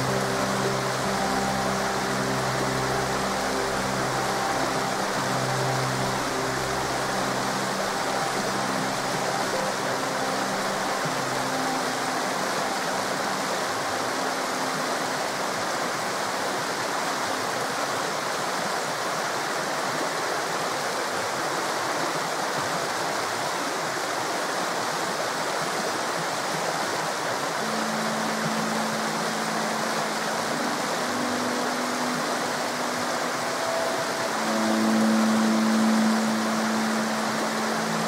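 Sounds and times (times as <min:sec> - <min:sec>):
low steady tones: 0:00.0 - 0:18.1, 0:26.6 - 0:38.0
river water rushing: 0:00.0 - 0:38.0.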